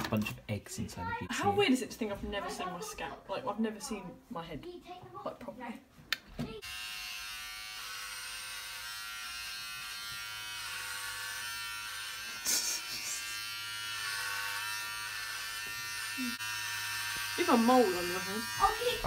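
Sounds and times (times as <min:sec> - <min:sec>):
electric hair clippers buzzing: 0:06.6 - 0:19.0.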